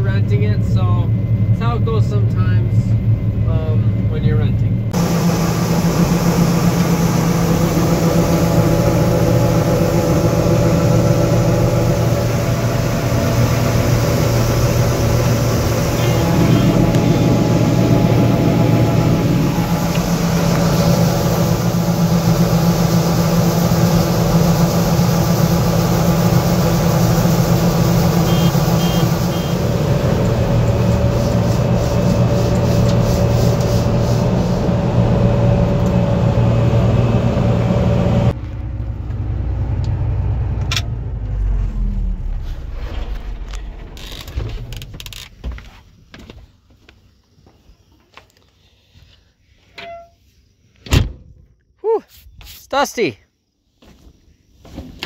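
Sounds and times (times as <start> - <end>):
combine harvester engine hum: 0.0 - 48.5
engine winding down: 4.9 - 45.7.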